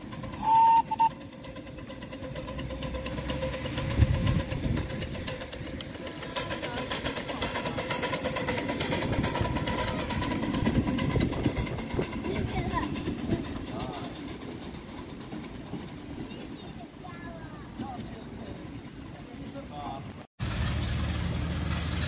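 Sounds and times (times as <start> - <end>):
steam blowing off: 0.0 - 16.1
steam locomotive exhaust chuffing: 0.0 - 19.2, 20.4 - 22.0
wheels rumbling on track: 0.0 - 22.0.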